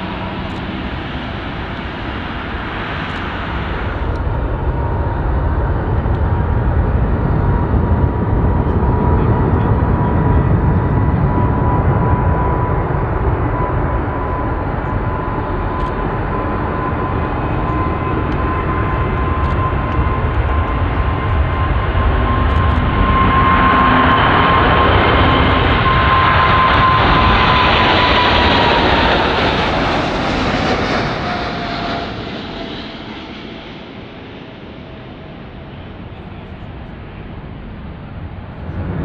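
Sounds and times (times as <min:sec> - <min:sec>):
jet airliner taking off: 0:00.0 - 0:39.0.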